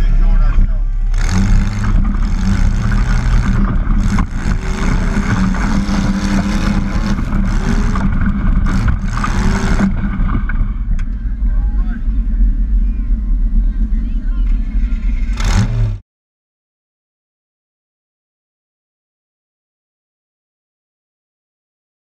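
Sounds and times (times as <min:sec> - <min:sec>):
tractor engine at full throttle: 0:00.0 - 0:16.0.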